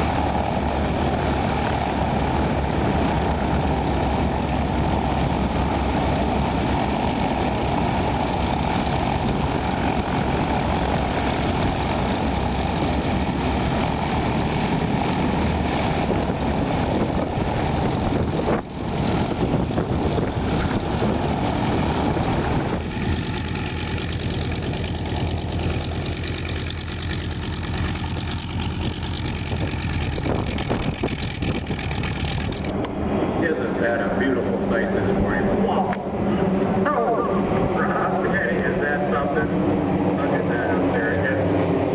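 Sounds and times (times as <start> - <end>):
light aircraft engine drone: 0.0 - 41.9.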